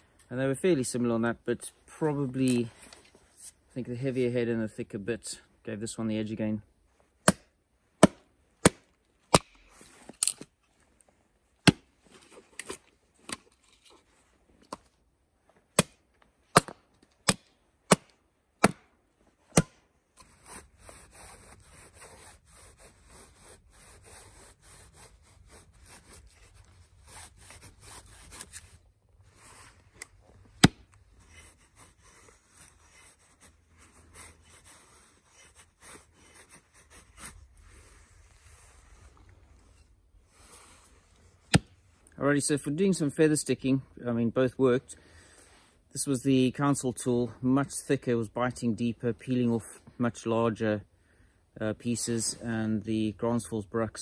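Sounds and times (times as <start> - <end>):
axe cracking into wood: 7.2 - 10.5, 11.6 - 11.9, 15.7 - 18.9, 19.5 - 19.8, 30.6 - 30.9, 41.5 - 41.8
axe scraping wood: 7.2 - 10.5, 11.6 - 14.0, 30.6 - 37.4, 41.4 - 41.8.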